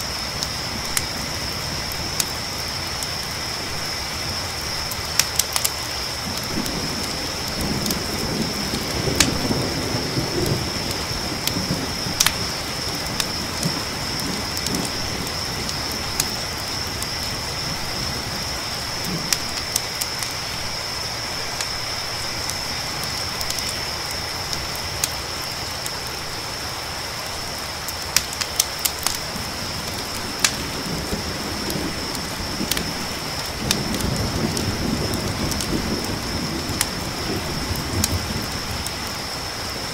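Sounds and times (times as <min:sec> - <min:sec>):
campfire crackling: 0:00.0 - 0:39.9
crickets trilling: 0:00.0 - 0:39.9
rain hiss: 0:00.0 - 0:39.9
distant thunder rumbling: 0:06.1 - 0:25.1, 0:29.0 - 0:39.9.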